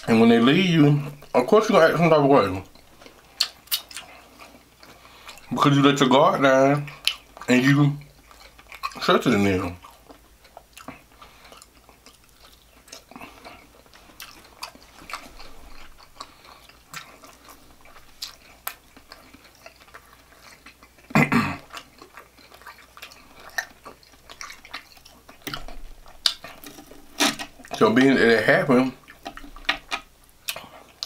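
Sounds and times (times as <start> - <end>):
close chewing: 0.0 - 31.0
wet mouth clicks and smacks: 2.8 - 4.1.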